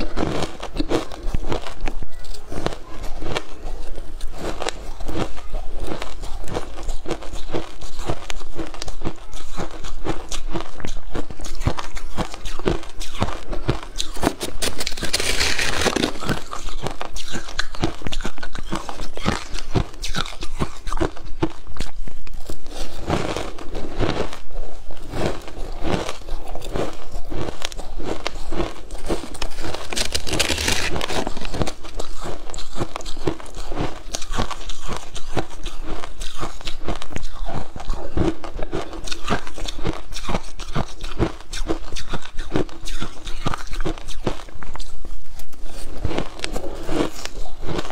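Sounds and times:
chewing crunchy shaved ice: 0.0s - 47.9s
metal spoon scraping ice: 11.4s - 20.8s, 25.1s - 38.0s.

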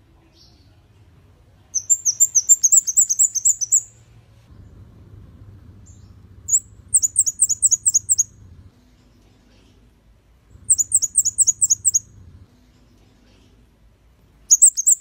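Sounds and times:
faint low hum: 0.0s - 15.0s
bird calling high thin notes: 1.8s - 4.0s, 5.9s - 8.4s, 10.6s - 12.2s, 14.5s - 15.0s.

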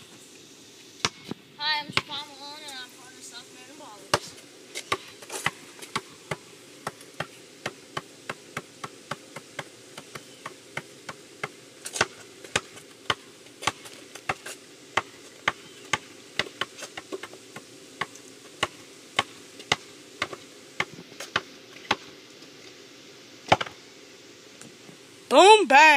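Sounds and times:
basketball bouncing on asphalt: 1.0s - 2.3s, 4.1s - 22.1s, 23.5s - 23.8s.

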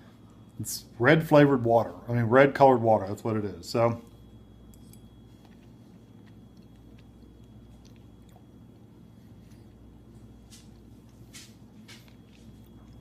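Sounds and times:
low room hum: 0.0s - 13.0s
chewing soft food: 4.0s - 13.0s.

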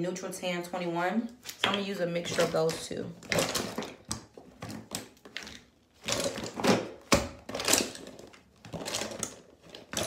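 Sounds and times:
makeup containers clattering: 1.5s - 10.0s.

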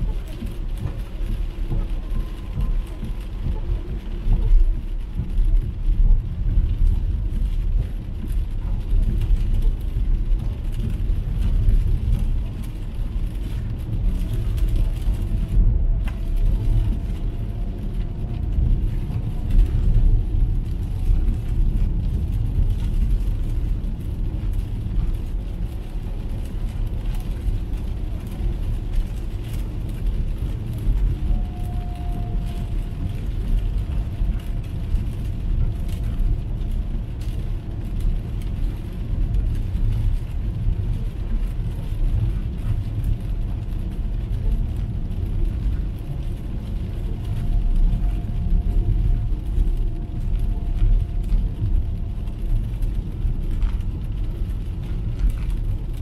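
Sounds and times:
road and tyre noise: 0.0s - 56.0s.

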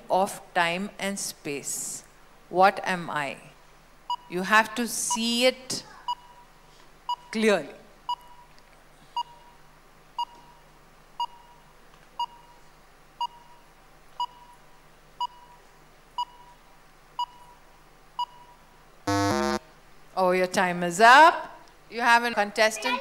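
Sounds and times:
short high timer beeps: 18.2s - 19.6s
long loud buzzer: 19.1s - 19.6s.

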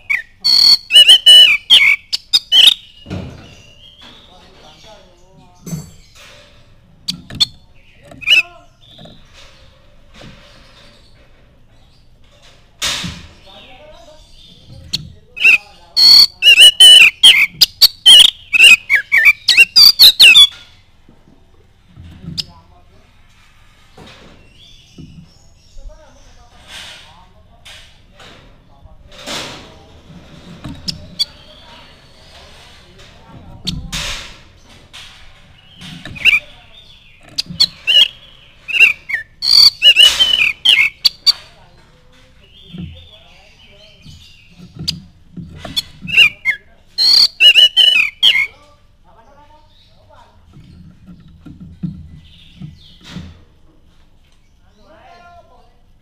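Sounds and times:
bird singing whistles and chirps: 0.0s - 4.3s, 14.4s - 20.6s, 35.6s - 41.4s, 45.8s - 48.6s.

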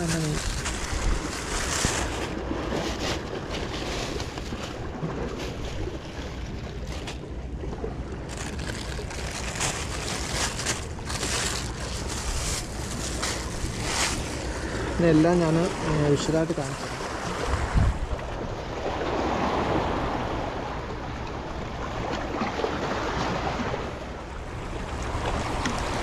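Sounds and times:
sea waves against rocks: 0.0s - 26.0s
wind buffeting microphone: 8.2s - 20.6s.

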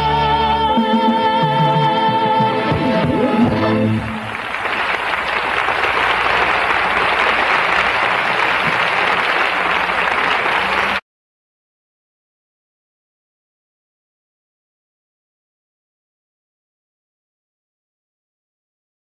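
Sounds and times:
audience applauding: 3.1s - 11.0s.

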